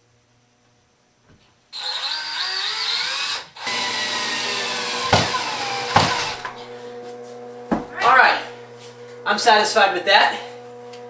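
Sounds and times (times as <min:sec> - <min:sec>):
cordless drill motor whine: 0:01.8 - 0:07.0.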